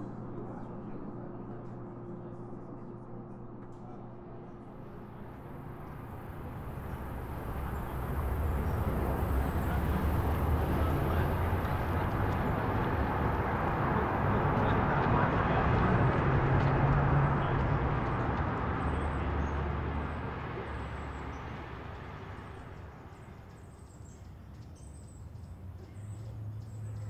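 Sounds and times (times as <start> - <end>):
road traffic rumble: 4.6 - 27.0.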